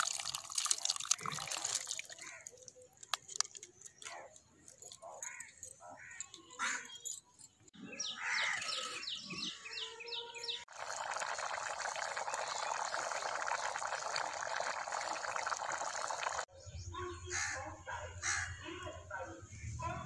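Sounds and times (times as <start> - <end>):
bird chirping: 5.5 - 10.7
curry boiling hard: 10.7 - 16.5.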